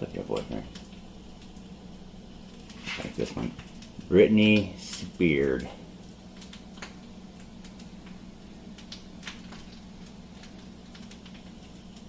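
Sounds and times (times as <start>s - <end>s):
faint irregular ticks and clicks: 0.0s - 1.7s, 2.4s - 12.0s
steady low hum: 0.0s - 12.0s.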